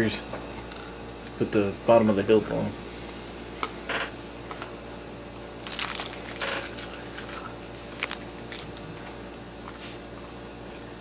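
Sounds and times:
plastic packaging crinkling: 0:05.6 - 0:08.8.

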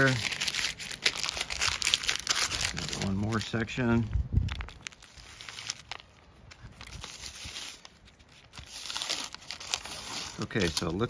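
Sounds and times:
paper peeling off fabric: 0:04.5 - 0:11.0.

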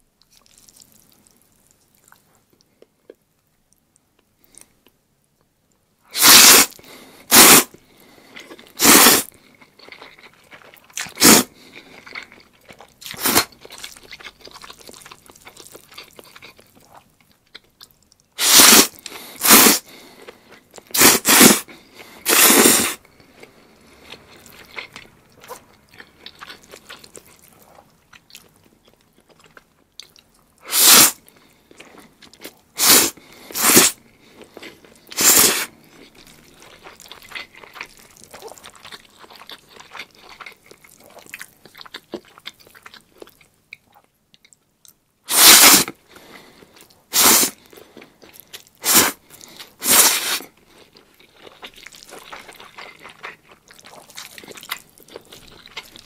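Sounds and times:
wet chewing smacks: 0:00.2 - 0:02.9, 0:09.6 - 0:18.2, 0:34.2 - 0:44.6, 0:46.2 - 0:56.0
loud short noisy bursts: 0:06.2 - 0:06.7, 0:18.4 - 0:19.8.

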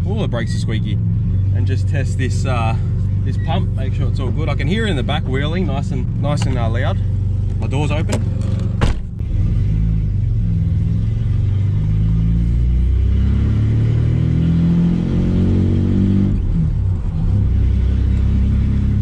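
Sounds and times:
car engine droning: 0:00.0 - 0:19.0
car door shutting: 0:08.1 - 0:09.2.

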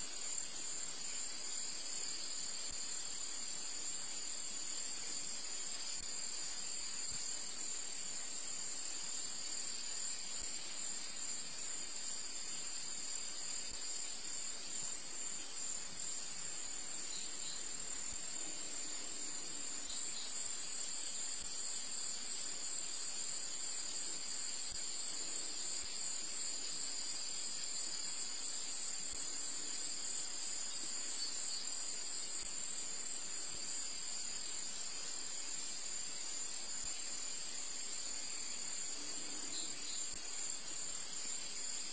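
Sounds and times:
faint hiss: 0:00.0 - 0:41.9
high-pitched insect chorus: 0:00.0 - 0:41.9.

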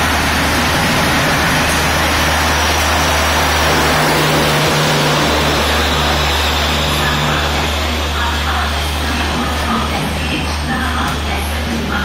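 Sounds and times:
train wheels rushing on rails: 0:00.0 - 0:12.0
low hum: 0:00.5 - 0:11.8.

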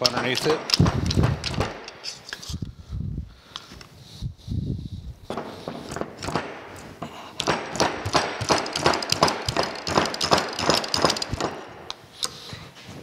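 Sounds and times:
pry bar clicking and knocking on metal: 0:00.0 - 0:02.1, 0:07.4 - 0:11.6.

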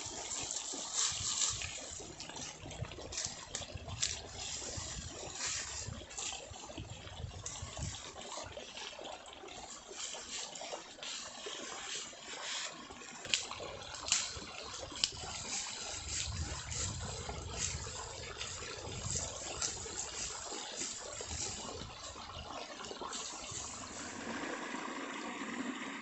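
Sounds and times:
dry leaves crackling and rustling: 0:00.0 - 0:06.4, 0:11.8 - 0:22.2, 0:23.1 - 0:24.2.

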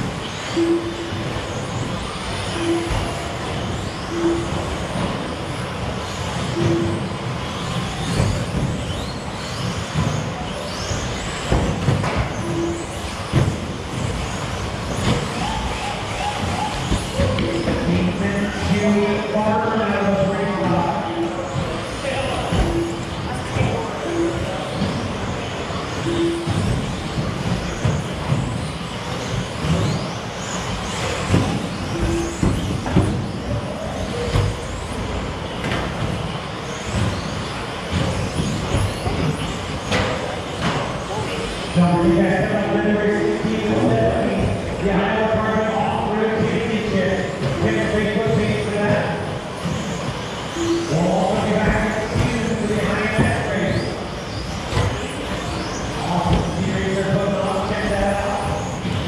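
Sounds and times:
steady tone: 0:00.0 - 0:09.3, 0:11.0 - 0:28.4, 0:39.9 - 0:58.5
electric motors whining: 0:00.0 - 0:59.0
short electronic beeps: 0:00.3 - 0:05.3, 0:06.3 - 0:07.2, 0:12.3 - 0:13.4, 0:15.0 - 0:19.6, 0:20.6 - 0:27.8, 0:31.8 - 0:33.2, 0:50.5 - 0:51.7.

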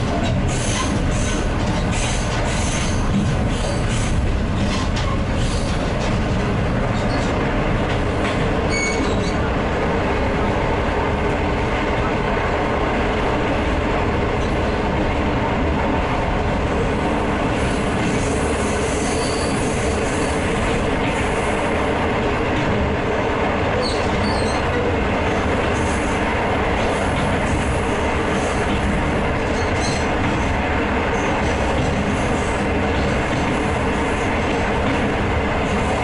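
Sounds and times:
train wheels rumbling on track: 0:00.0 - 0:36.0
high wheel squeals: 0:08.7 - 0:09.5, 0:18.6 - 0:20.3, 0:23.8 - 0:24.7.

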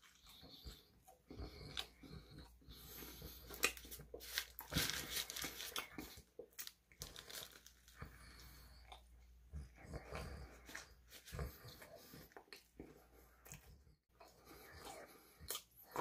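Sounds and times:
eating sounds: 0:00.0 - 0:16.0
paper wrapper crinkling: 0:03.7 - 0:08.0.

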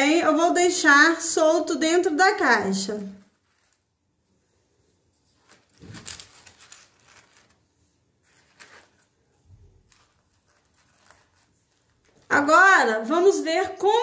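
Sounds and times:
tissue paper rustling: 0:02.5 - 0:12.8.

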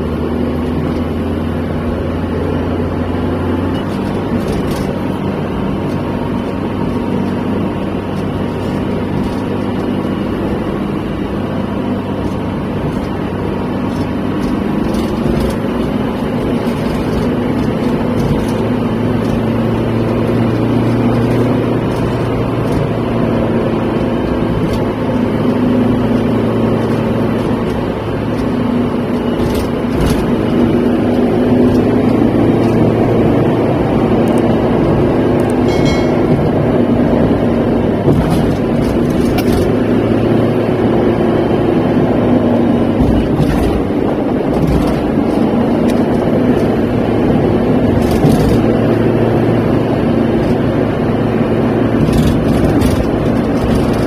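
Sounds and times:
car engine hum: 0:00.0 - 0:54.0.

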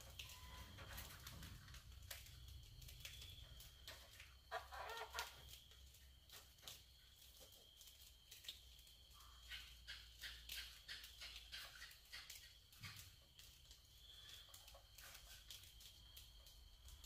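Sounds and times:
faint clicks and scratches: 0:00.0 - 0:17.0
clucking call: 0:04.5 - 0:05.3.

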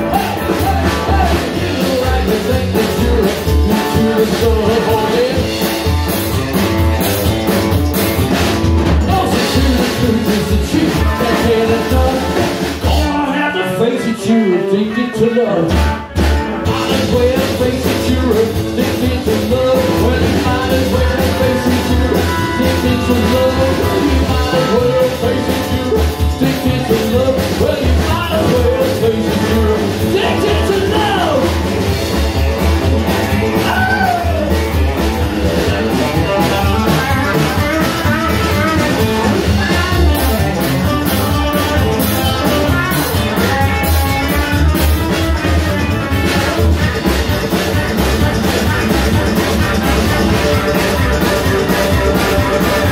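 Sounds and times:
man singing into microphone: 0:00.0 - 0:05.6, 0:09.0 - 0:15.9, 0:16.7 - 0:31.5, 0:33.3 - 0:34.6
double bass: 0:00.0 - 0:52.9
rock and roll band playing: 0:00.0 - 0:52.9.

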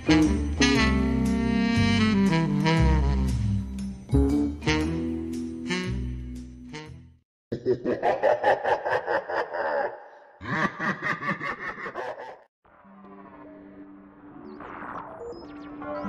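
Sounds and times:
background music: 0:00.0 - 0:07.2
person laughing: 0:07.5 - 0:12.5.

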